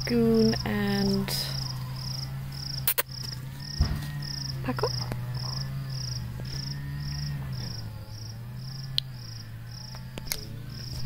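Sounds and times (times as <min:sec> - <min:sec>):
insect chirping: 0:00.0 - 0:11.0
low steady hum: 0:00.0 - 0:11.0
sharp clicks: 0:02.8 - 0:03.4.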